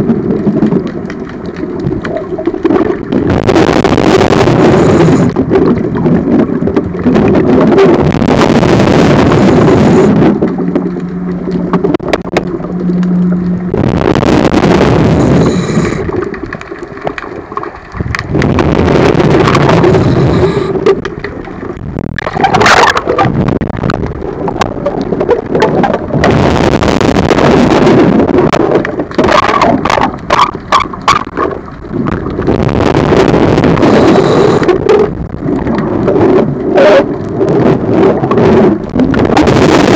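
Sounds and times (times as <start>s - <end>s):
exhaled bubbles rushing underwater: 0.0s - 39.9s
steady low hum: 7.0s - 16.5s.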